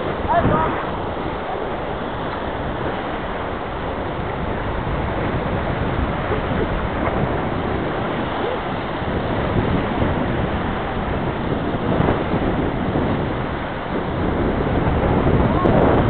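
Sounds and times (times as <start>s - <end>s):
river rapids rushing: 0.0s - 16.0s
wind buffeting microphone: 0.0s - 16.0s.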